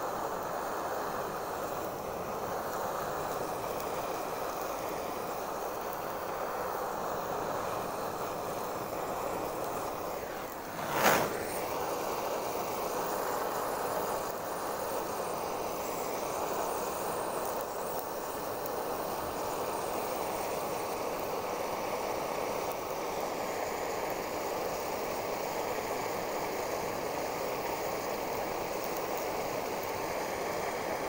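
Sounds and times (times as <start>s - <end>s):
gas torch flame hissing: 0.0s - 31.0s
sharp pop: 10.2s - 11.8s.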